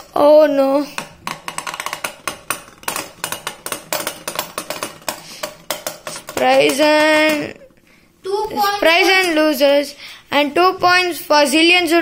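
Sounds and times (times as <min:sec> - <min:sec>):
spinning tops clattering: 0:00.9 - 0:07.6
child's held voice: 0:08.2 - 0:12.0.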